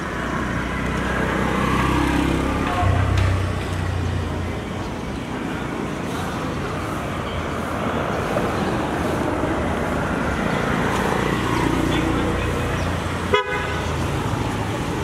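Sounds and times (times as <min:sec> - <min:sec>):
road traffic roar: 0:00.0 - 0:15.0.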